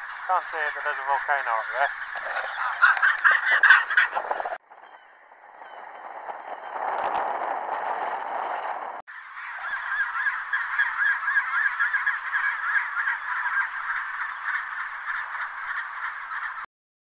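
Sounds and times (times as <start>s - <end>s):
penguin colony calling: 0.0s - 4.6s, 9.2s - 16.7s.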